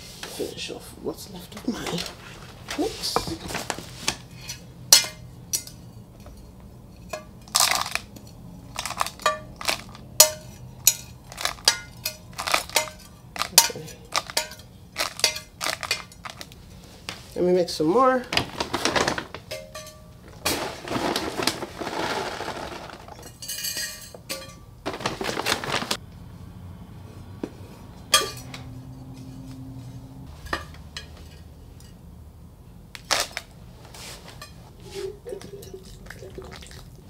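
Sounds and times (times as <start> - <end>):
potting mix rustling and pouring: 18.2 - 19.4, 20.4 - 23.4, 24.8 - 26.0.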